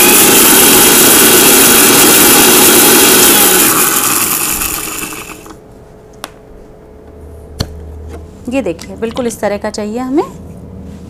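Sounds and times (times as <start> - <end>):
mixer grinder grinding seeds: 0.0 - 5.6
motor winding down: 0.0 - 5.6.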